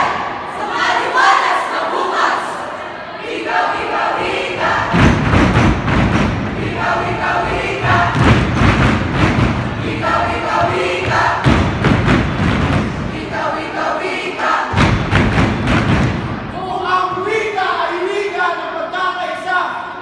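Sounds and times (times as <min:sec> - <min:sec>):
group chanting in unison: 0:00.0 - 0:05.5, 0:06.4 - 0:12.1, 0:12.8 - 0:15.2
heavy low thumping: 0:04.6 - 0:13.6, 0:14.7 - 0:16.6.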